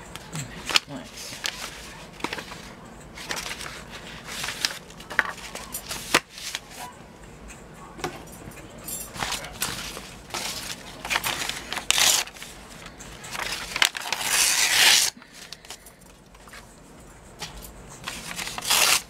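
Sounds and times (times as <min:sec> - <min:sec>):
paper rustling and crackling: 0:00.6 - 0:06.9, 0:09.1 - 0:15.8, 0:18.0 - 0:19.0.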